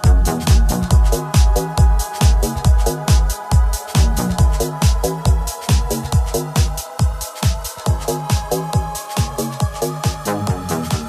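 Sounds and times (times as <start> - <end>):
electronic dance music: 0.0 - 11.0
held synth chords: 0.0 - 11.0
steady kick drum: 0.0 - 11.0.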